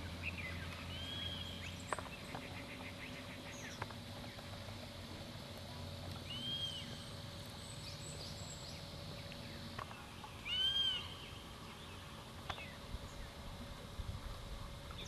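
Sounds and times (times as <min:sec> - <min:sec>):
faint bird chirps: 0:06.2 - 0:13.4
bird calling high note: 0:10.4 - 0:11.4.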